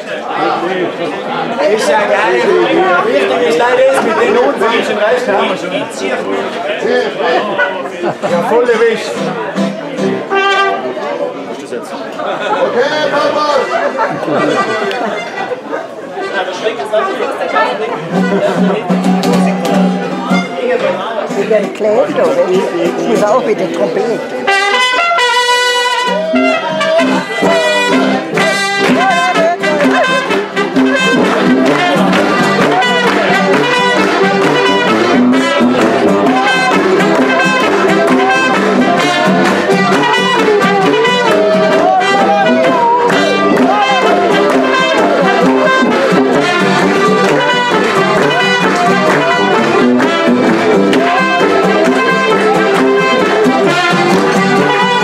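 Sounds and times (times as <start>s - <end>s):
guitar: 0.0s - 16.4s, 17.3s - 55.0s
trumpet: 9.0s - 11.2s, 16.2s - 20.9s, 24.4s - 55.0s
tuba: 9.1s - 11.1s, 17.6s - 20.6s, 24.2s - 55.0s
button accordions: 13.6s - 15.6s, 21.4s - 55.0s.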